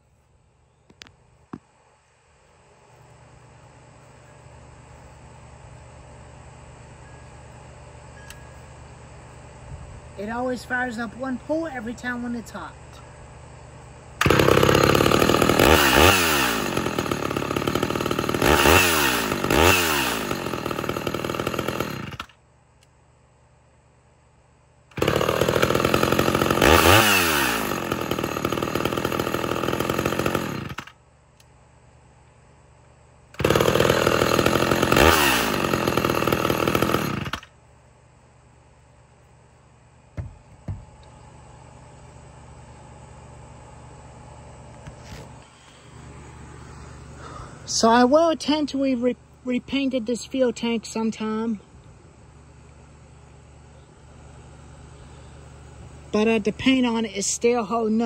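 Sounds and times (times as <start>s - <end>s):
chainsaw starting and revving: 14.2s - 22.4s, 24.9s - 31.0s, 33.4s - 37.5s.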